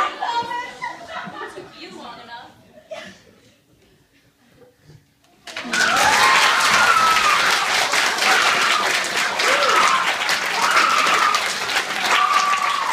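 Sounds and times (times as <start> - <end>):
audience applauding: 5.4 - 12.9
crowd cheering: 5.5 - 12.9.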